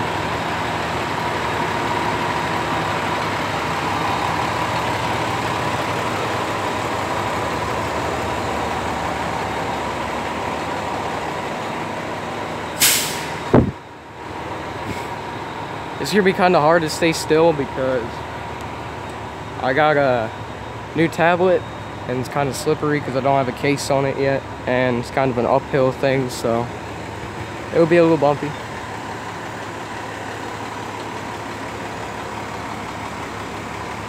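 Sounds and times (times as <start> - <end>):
diesel engine idling: 0.0 - 34.0
air hissing: 12.8 - 13.7.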